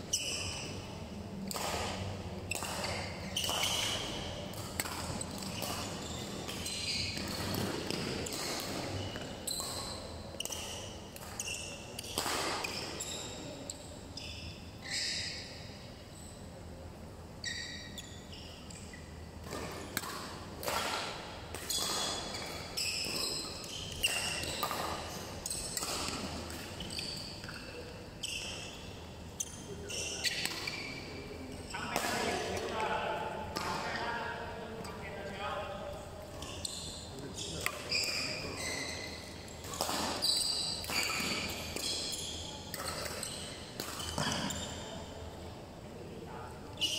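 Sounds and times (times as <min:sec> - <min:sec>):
shoes squeaking on court floor: 0:00.0 - 0:16.4, 0:17.4 - 0:33.0, 0:36.3 - 0:45.2, 0:46.7 - 0:46.9
rackets hitting shuttlecock: 0:01.4 - 0:13.0, 0:18.7 - 0:27.7, 0:30.0 - 0:30.8, 0:31.8 - 0:34.1, 0:39.3 - 0:44.9.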